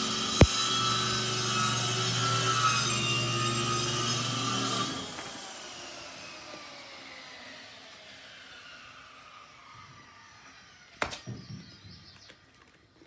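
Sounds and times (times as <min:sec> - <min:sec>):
electric power tool running: 0:00.0 - 0:11.1.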